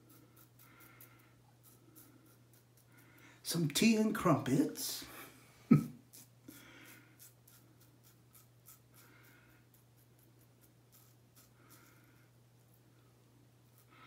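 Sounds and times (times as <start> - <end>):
razor scraping stubble: 0.0 - 4.5, 6.9 - 12.0.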